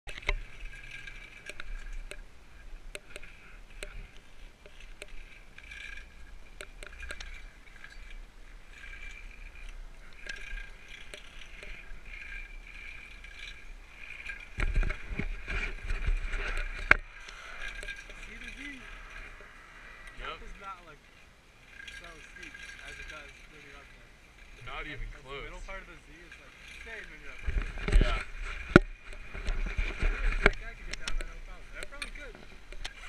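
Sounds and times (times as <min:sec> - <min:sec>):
chairlift mechanical hum: 0:00.1 - 0:33.0
chairlift clicks: 0:02.9 - 0:08.2, 0:08.8 - 0:20.2.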